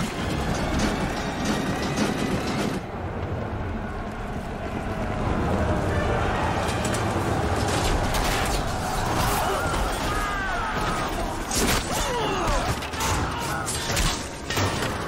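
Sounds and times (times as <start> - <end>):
men shouting: 6.0 - 14.3
shields and weapons clashing: 6.8 - 15.0.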